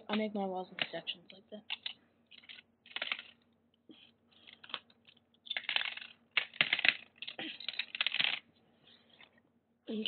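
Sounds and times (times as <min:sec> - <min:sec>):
plastic bricks clicking: 0:00.1 - 0:03.4, 0:04.4 - 0:08.5.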